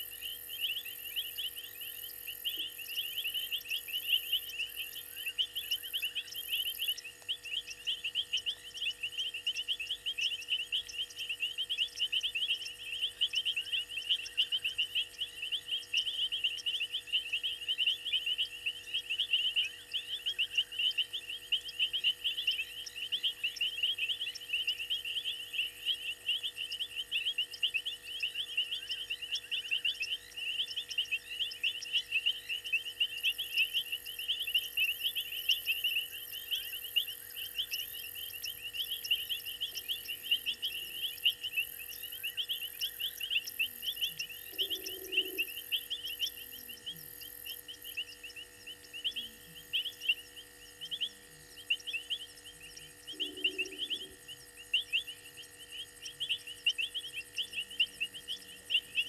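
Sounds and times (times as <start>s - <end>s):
insects and frogs chirping: 0.0s - 59.0s.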